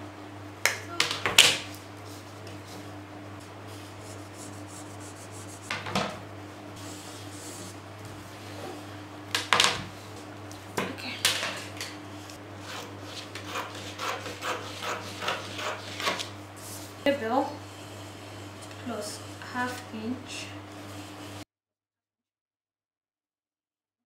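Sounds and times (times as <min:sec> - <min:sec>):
low steady hum: 0:00.0 - 0:14.2
ruler and marker rubbing on paper: 0:03.8 - 0:05.8, 0:06.8 - 0:07.8, 0:12.6 - 0:16.9.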